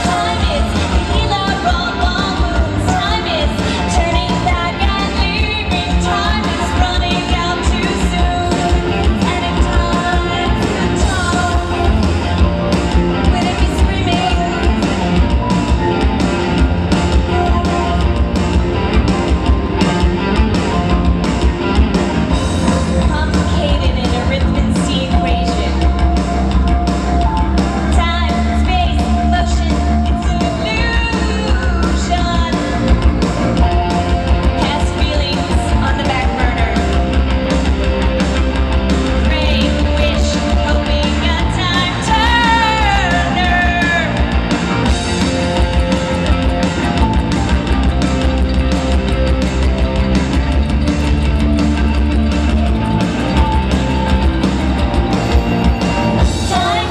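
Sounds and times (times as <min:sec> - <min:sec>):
woman singing into a microphone: 0:00.0 - 0:11.9, 0:27.9 - 0:32.8, 0:56.4 - 0:56.9
electric bass: 0:00.0 - 0:56.9
live rock band playing: 0:00.0 - 0:56.9
steady drum beat: 0:00.0 - 0:56.9.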